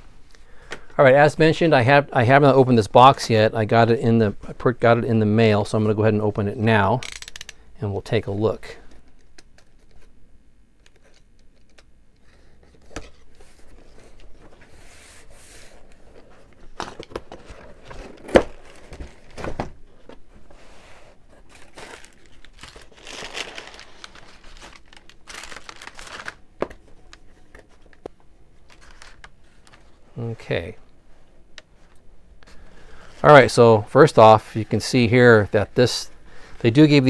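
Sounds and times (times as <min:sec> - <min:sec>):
packing paper rustling: 0:12.4 - 0:30.0.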